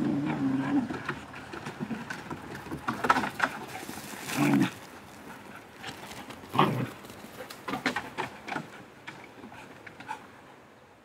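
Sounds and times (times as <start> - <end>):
dog growling low: 0.0 - 1.1, 4.2 - 4.8, 6.5 - 6.9
dogs scuffling: 1.6 - 8.7.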